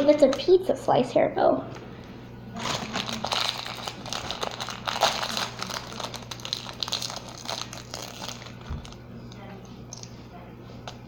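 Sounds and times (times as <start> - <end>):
plastic packaging crinkling: 2.6 - 10.2.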